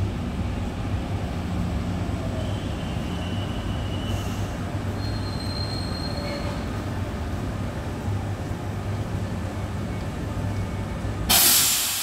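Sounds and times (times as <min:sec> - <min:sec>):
electric train rolling with hum: 0:00.0 - 0:12.0
thin high squeal: 0:05.0 - 0:06.6.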